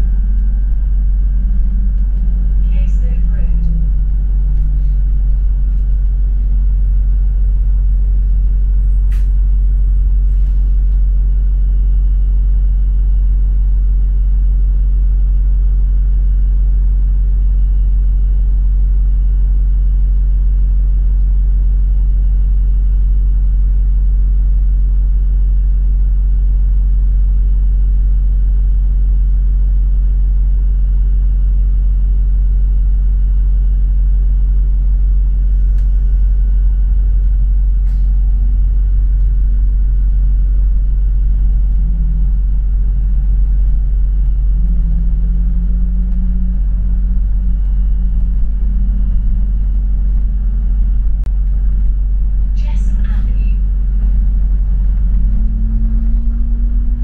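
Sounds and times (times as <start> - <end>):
bus engine humming: 0.0 - 11.9, 35.5 - 57.0
brief click: 9.1 - 9.4.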